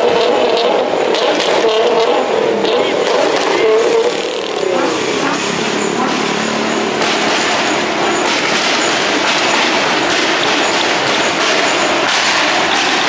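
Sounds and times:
sports car exhaust roaring: 0.0 - 13.0.

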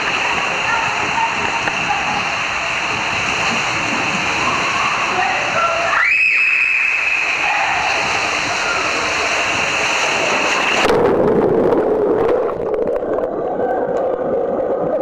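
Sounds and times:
water rushing through slide tube: 0.0 - 15.0
muffled underwater gurgling: 7.4 - 15.0.

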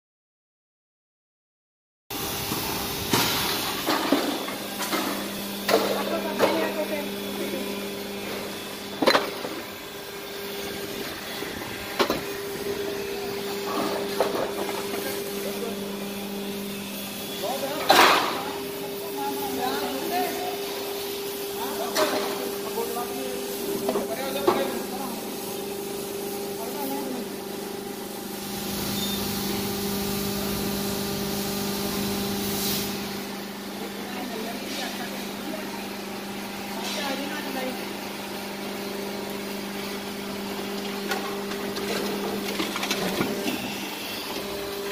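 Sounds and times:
steady machine hum: 2.1 - 44.9
hiss of oil flow: 27.4 - 33.3.

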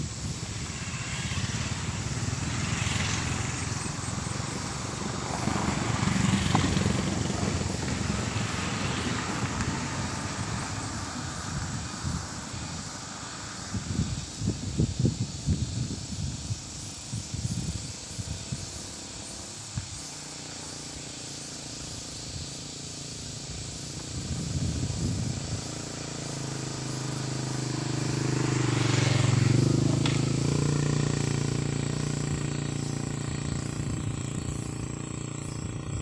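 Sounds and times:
wind gusts rumbling: 0.0 - 19.9, 23.5 - 26.6
vehicle engine passing by: 0.0 - 36.0.

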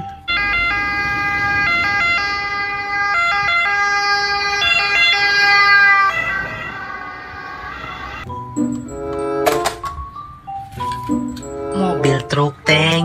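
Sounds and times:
ambulance two-tone siren: 0.0 - 9.4.

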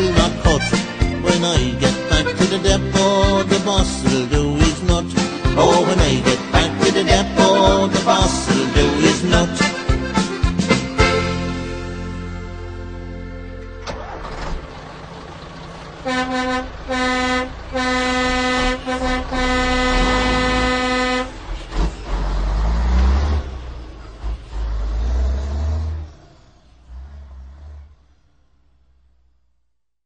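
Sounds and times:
diesel engine rumbling and revving: 0.0 - 29.7
truck air horn blasts: 16.0 - 21.5.

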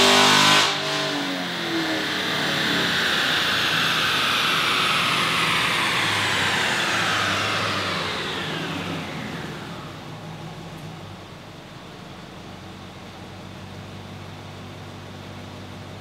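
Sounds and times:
high falling whine: 0.0 - 13.6
car engine idling: 0.7 - 16.0.

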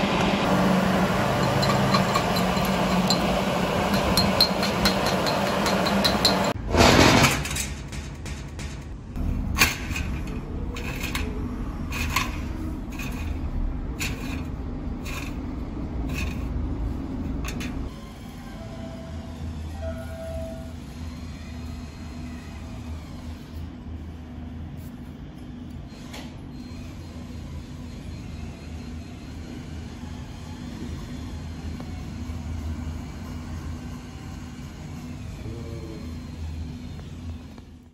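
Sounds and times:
metal clicks and scrapes: 3.9 - 17.9
low mechanical rumble with hum: 7.3 - 37.9.

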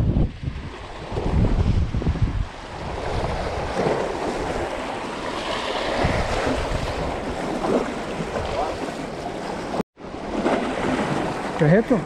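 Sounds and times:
wind rumbling on microphone: 0.0 - 9.2.

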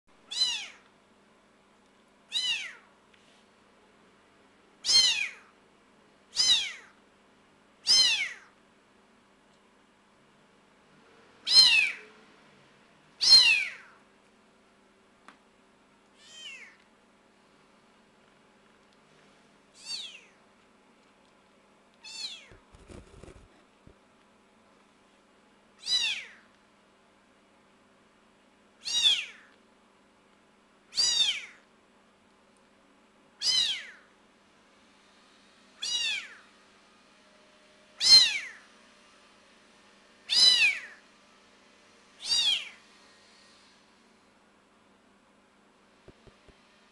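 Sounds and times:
kitten meowing: 0.3 - 0.8, 2.3 - 2.9, 4.8 - 5.5, 6.4 - 7.0, 7.9 - 8.5, 11.5 - 12.0, 13.2 - 14.0, 16.2 - 16.8, 19.8 - 20.4, 22.0 - 22.6, 25.8 - 26.4, 28.8 - 29.5, 30.9 - 31.6, 33.4 - 34.1, 35.8 - 36.4, 38.0 - 38.6, 40.3 - 41.0, 42.2 - 42.8.

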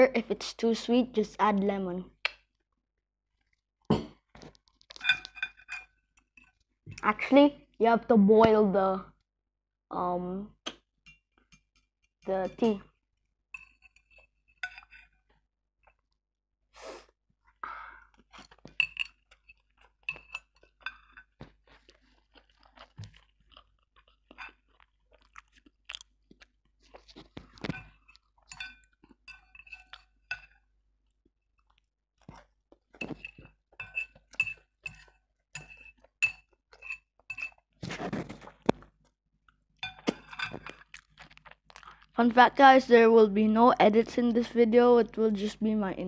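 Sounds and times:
chopsticks clinking on bowl: 5.0 - 6.5, 13.6 - 15.1, 18.5 - 21.4, 27.6 - 30.6, 33.0 - 37.6
wet chewing and smacking: 18.1 - 42.2.

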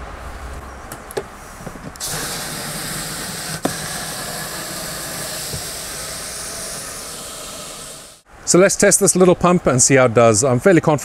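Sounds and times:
water jetting from hose: 2.0 - 8.2.

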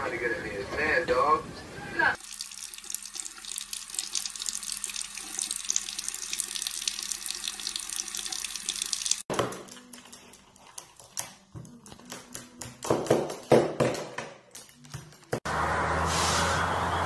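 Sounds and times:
faucet running into sink: 2.2 - 9.3.

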